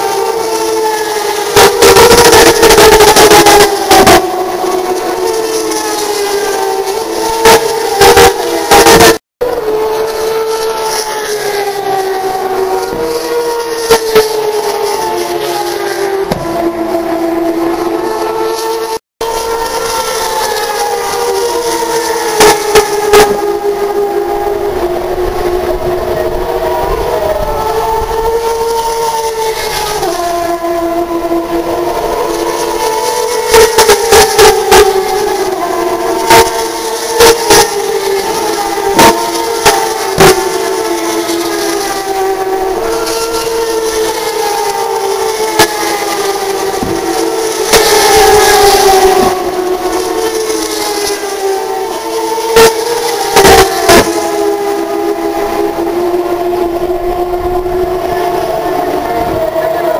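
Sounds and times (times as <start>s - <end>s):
race car engines wailing: 0.0s - 59.9s.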